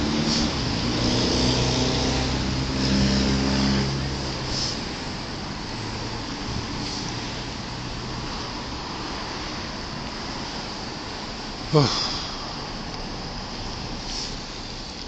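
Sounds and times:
street traffic: 0.0 - 15.0.

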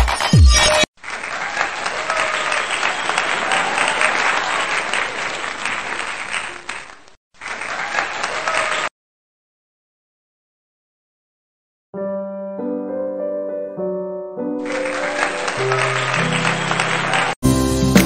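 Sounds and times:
electronic music beat: 0.0 - 0.9
crowd applause: 1.0 - 8.9, 14.6 - 17.4.

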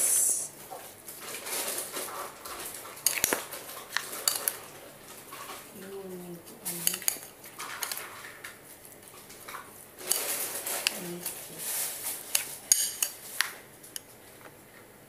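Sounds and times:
spoon stirring in ceramic bowl: 3.0 - 4.6, 6.6 - 8.2, 9.5 - 14.1.

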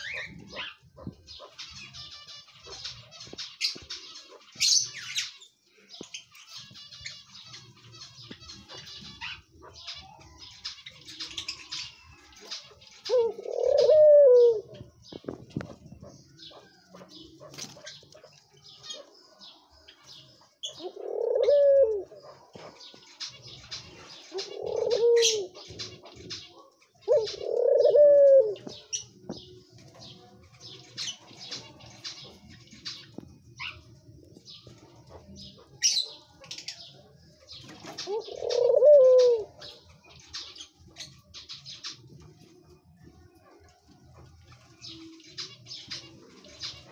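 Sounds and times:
dove cooing: 0.0 - 1.8, 8.6 - 19.2, 20.6 - 30.0, 37.5 - 43.7.

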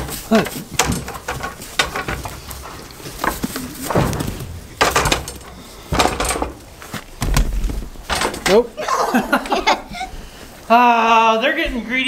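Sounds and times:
goats bumping wooden feeder: 0.0 - 8.8.

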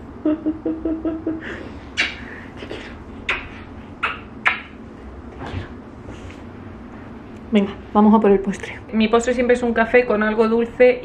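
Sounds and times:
woman giggling: 0.2 - 3.0
kissing smacks: 1.9 - 4.8.

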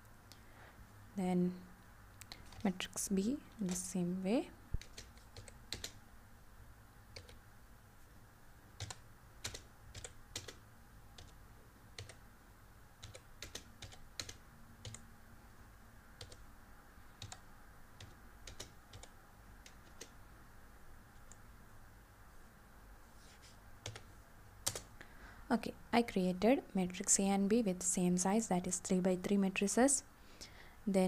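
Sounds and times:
low background hum: 0.0 - 31.0
computer keyboard keystrokes: 3.5 - 3.9, 4.8 - 6.0, 7.2 - 7.4, 8.8 - 10.6, 11.2 - 11.4, 12.0 - 12.2, 13.0 - 15.0, 16.2 - 16.4, 17.2 - 17.4, 18.0 - 20.2, 23.8 - 24.9.

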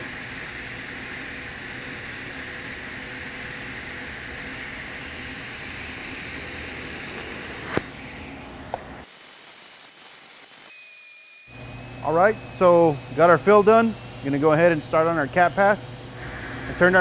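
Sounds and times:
welding arc hissing: 0.0 - 17.0.

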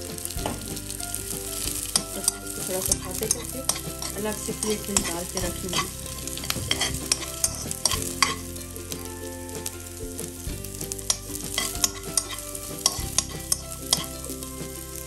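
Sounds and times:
vegetables sizzling in oil: 0.0 - 15.0
spatula clicking and scraping pan: 1.5 - 8.5, 11.1 - 14.2.

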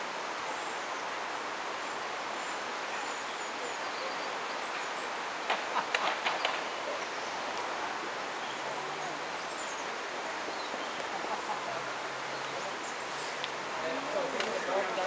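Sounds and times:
outdoor background hiss: 0.0 - 15.0
faint bird chirps: 1.8 - 5.2
sharp clicks and knocks: 5.5 - 6.7.

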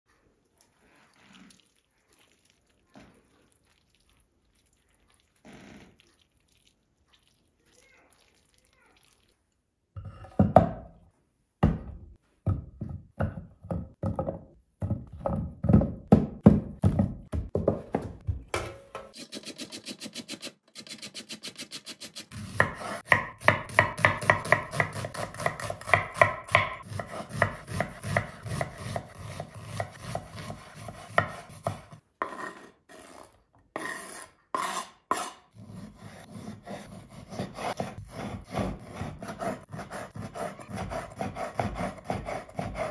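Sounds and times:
knife chopping on wooden board: 11.6 - 18.7, 22.3 - 32.7, 34.6 - 42.9
grating on metal grater: 33.8 - 42.9.

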